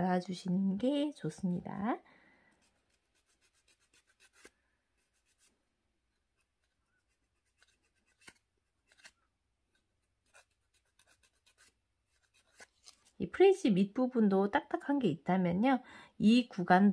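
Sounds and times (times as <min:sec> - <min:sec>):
nail file rasping: 0:02.8 - 0:05.5, 0:06.4 - 0:09.1, 0:10.2 - 0:12.7.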